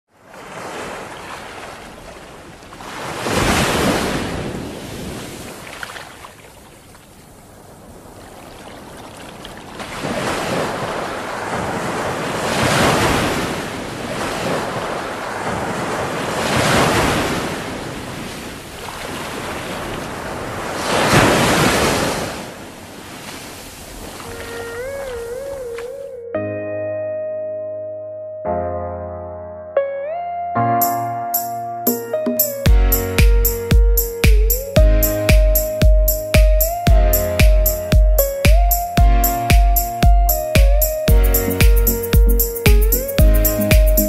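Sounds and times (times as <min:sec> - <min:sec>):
waves breaking on a beach: 0:00.1 - 0:26.1.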